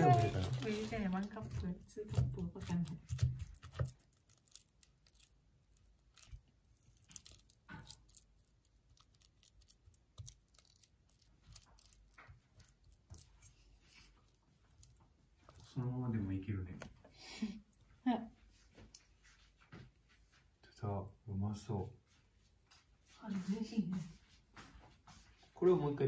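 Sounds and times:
spatula scraping and squishing in pot: 0:00.0 - 0:16.5.

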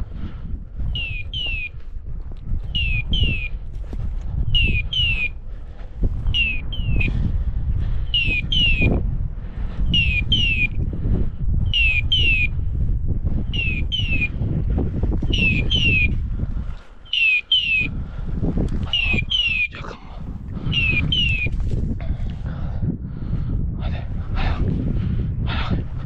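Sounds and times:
walking through dry scrub: 0:00.0 - 0:08.1, 0:21.3 - 0:22.8
beeper collar beeps: 0:01.0 - 0:01.7, 0:02.7 - 0:03.5, 0:04.5 - 0:05.4, 0:06.3 - 0:07.1, 0:08.2 - 0:08.9, 0:11.7 - 0:12.5, 0:13.6 - 0:14.3, 0:15.3 - 0:16.1, 0:17.1 - 0:17.9.

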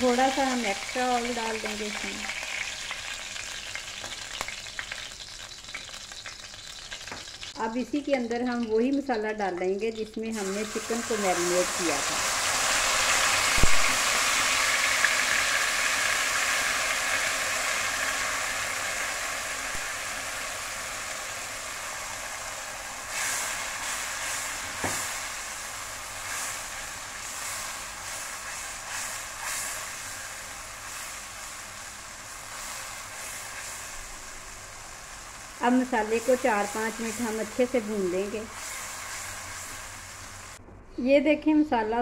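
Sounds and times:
paste sizzling in hot oil: 0:00.0 - 0:40.6
spatula scraping in pan: 0:26.2 - 0:31.6, 0:38.3 - 0:40.1.

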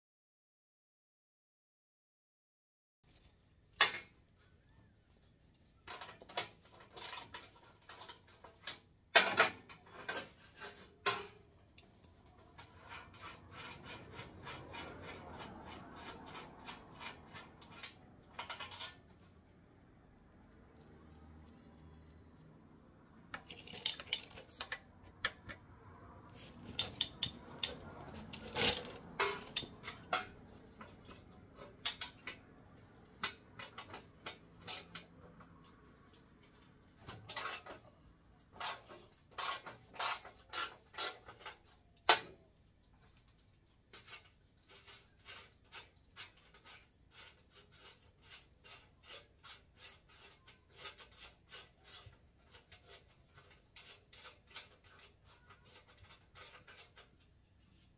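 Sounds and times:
tools clinking on metal bumper: 0:26.4 - 0:35.3.

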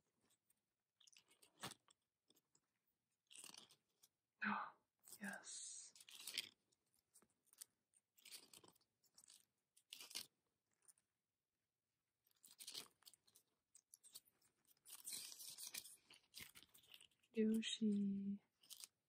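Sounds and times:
card pages flipping: 0:14.8 - 0:17.1.

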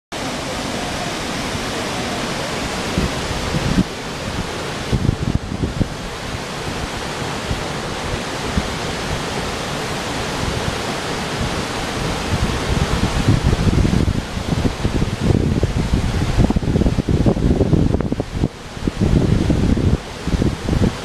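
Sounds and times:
river rapids roaring over rocks: 0:00.1 - 0:21.0
wind buffeting microphone: 0:00.2 - 0:21.0.

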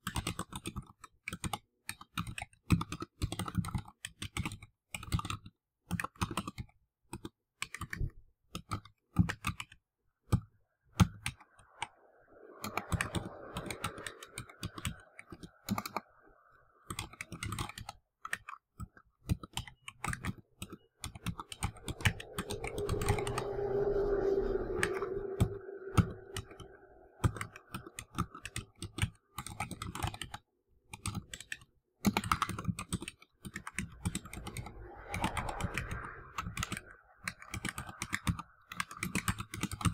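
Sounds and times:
low background rumble: 0:20.8 - 0:28.1.

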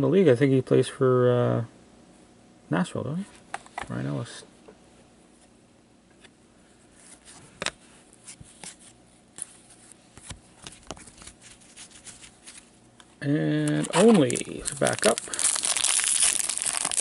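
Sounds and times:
cards clicking and rustling: 0:10.2 - 0:12.7, 0:13.6 - 0:17.0.

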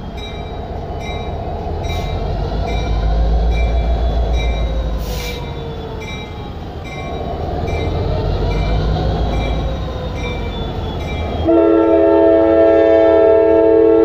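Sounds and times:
diesel locomotive running past: 0:00.0 - 0:14.0
locomotive air horn: 0:11.4 - 0:14.0.

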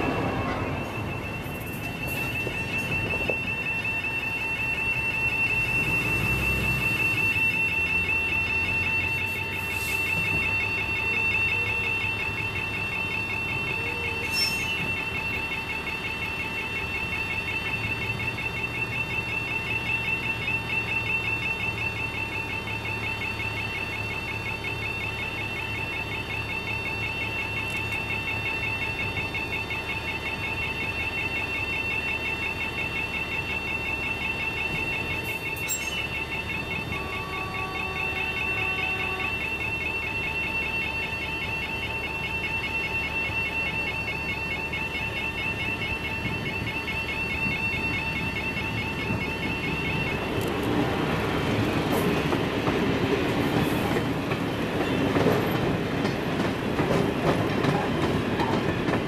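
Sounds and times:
heavy vehicle rumbling: 0:00.0 - 0:12.3
warbling crossing alarm: 0:00.0 - 0:59.0.

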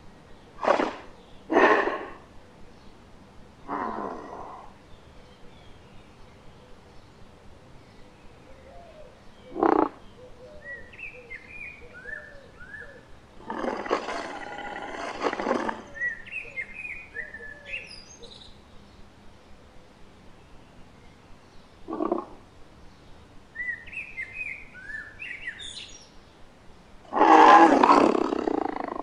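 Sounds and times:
birds chirping: 0:00.0 - 0:29.0
cartoon dinosaur roar: 0:03.7 - 0:04.7, 0:13.4 - 0:16.0, 0:27.1 - 0:29.0.

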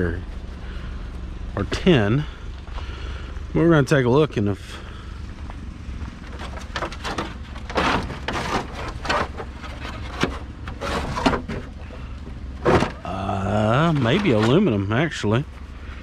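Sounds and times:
low steady rumble: 0:00.0 - 0:16.0
scrap metal knocks and scrapes: 0:06.3 - 0:11.8, 0:12.6 - 0:13.0.

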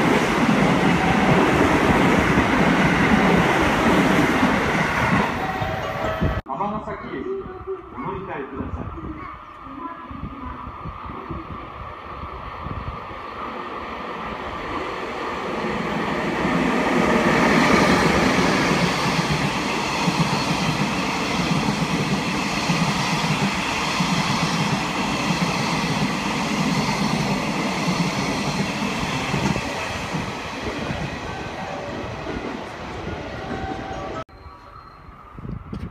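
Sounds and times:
train wheels rumbling on rails: 0:10.1 - 0:34.2.

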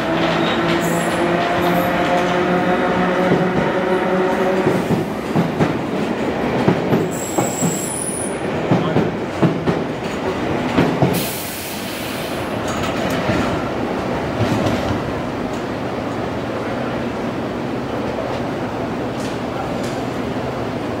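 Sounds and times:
train wheels clattering: 0:00.0 - 0:15.7.

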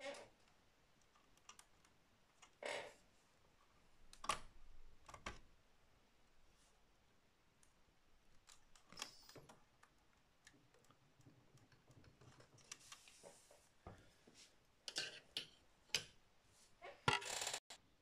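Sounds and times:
fingers rustling wires: 0:07.6 - 0:13.8.

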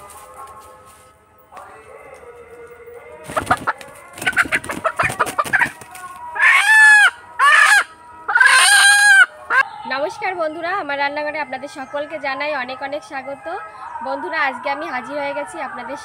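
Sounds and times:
wings flapping and rustling: 0:03.2 - 0:06.4
rooster squawking: 0:06.4 - 0:09.6.

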